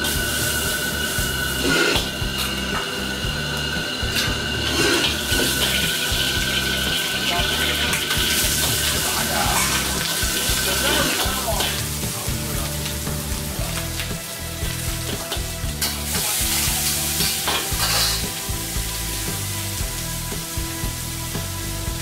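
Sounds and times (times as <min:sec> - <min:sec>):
metal ladle scraping wok: 0:00.0 - 0:12.1, 0:14.4 - 0:18.7
food sizzling in a wok: 0:00.0 - 0:22.0.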